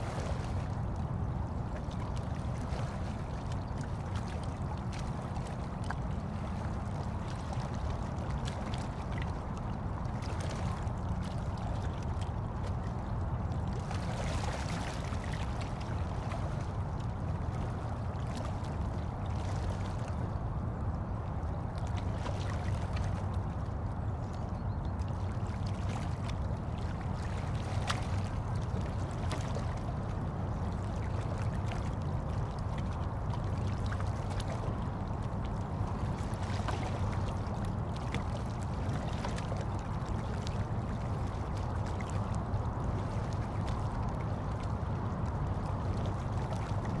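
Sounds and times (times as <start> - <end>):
small water splashes: 0.0 - 47.0
faint water drips: 1.7 - 47.0.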